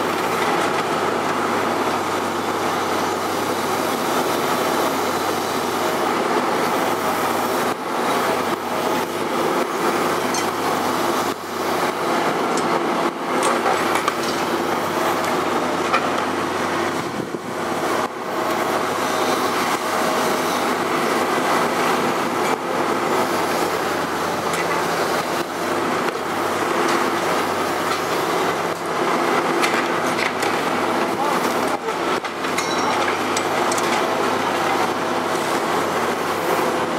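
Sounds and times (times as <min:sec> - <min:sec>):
excavator engine and hydraulics: 0:00.0 - 0:36.9
metal clanks and knocks: 0:32.5 - 0:34.0.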